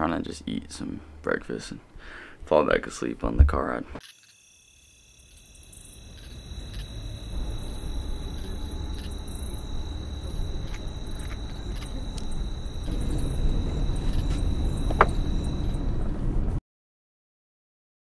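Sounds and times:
car engine and road rumble: 5.8 - 16.6.

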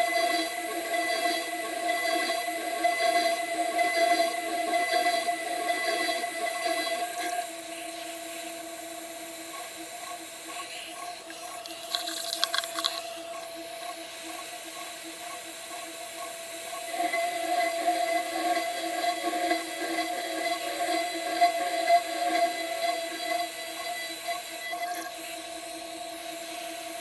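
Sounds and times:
router spindle cutting metal: 0.0 - 27.0
short hiss with rattling clicks: 11.3 - 13.1.

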